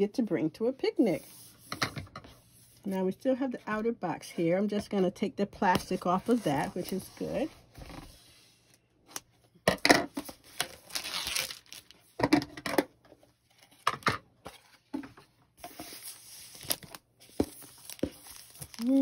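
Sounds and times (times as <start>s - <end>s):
plastic wrap tearing and crinkling: 10.4s - 12.2s, 15.9s - 19.0s.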